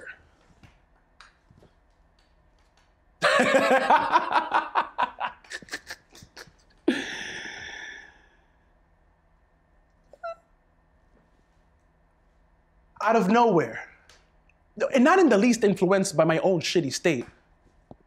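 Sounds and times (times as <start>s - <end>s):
man laughing hard: 3.2s - 7.2s.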